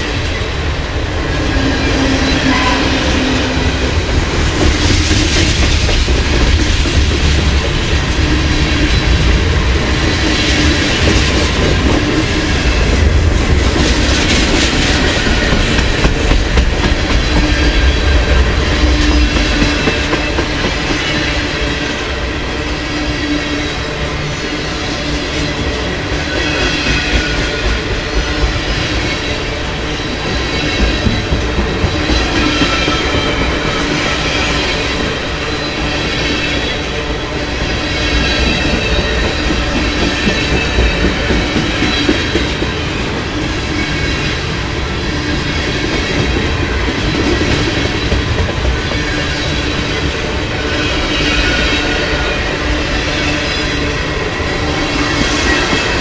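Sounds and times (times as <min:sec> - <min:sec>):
train wheels rumbling over rails: 0:00.0 - 0:56.0
thin high ringing tones: 0:01.6 - 0:03.8.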